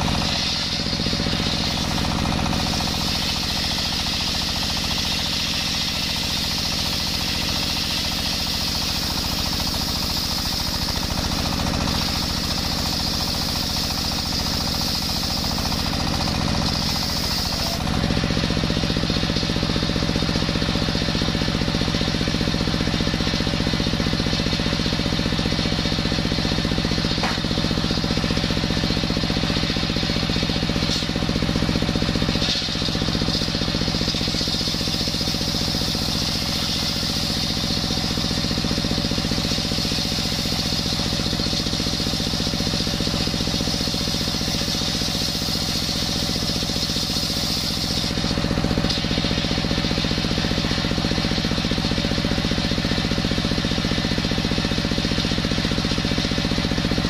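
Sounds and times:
diesel engine running: 0:00.0 - 0:57.0
saw blade screaming through log: 0:11.9 - 0:18.0, 0:43.5 - 0:48.3.

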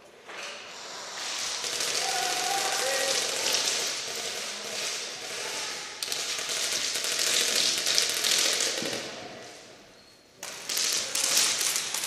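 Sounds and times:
rapid game gun shots echoing: 0:01.2 - 0:09.2, 0:10.4 - 0:12.0.

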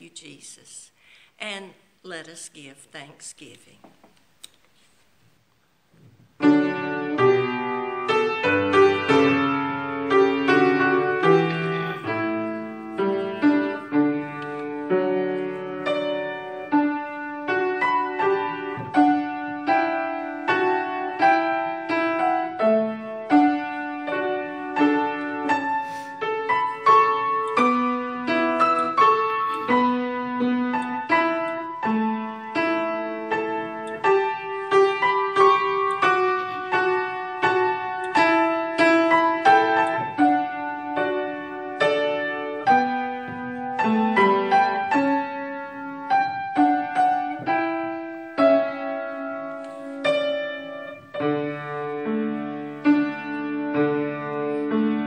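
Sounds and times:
solo piano playing: 0:06.4 - 0:55.0.

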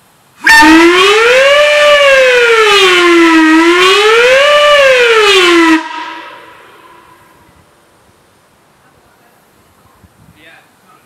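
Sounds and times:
siren-like whistle wail: 0:00.4 - 0:07.4.

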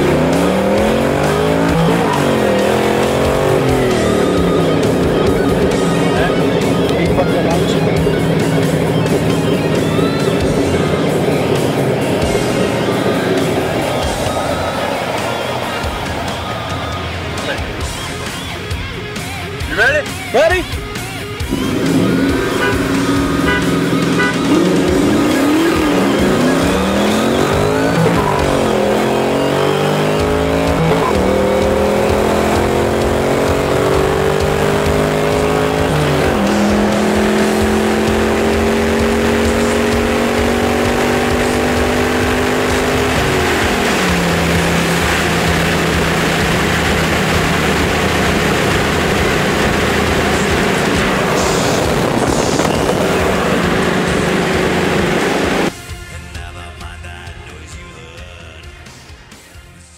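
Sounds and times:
car engine accelerating through gears: 0:00.0 - 0:20.3, 0:20.9 - 0:55.8.

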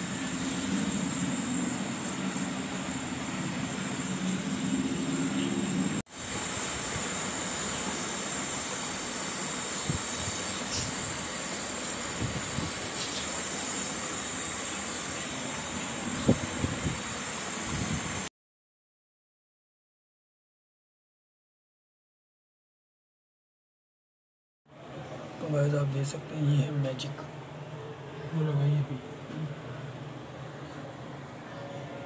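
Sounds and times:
gas torch hissing: 0:00.0 - 0:18.3.

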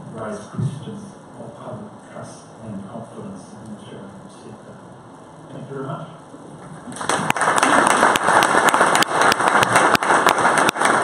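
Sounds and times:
audience applauding: 0:06.8 - 0:11.0.

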